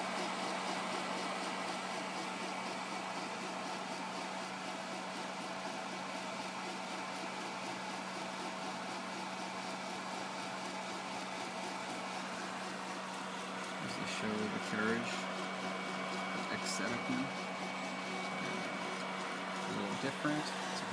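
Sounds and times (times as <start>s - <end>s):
steady hum: 10.0s - 20.9s
stepper motors whirring: 13.6s - 20.9s.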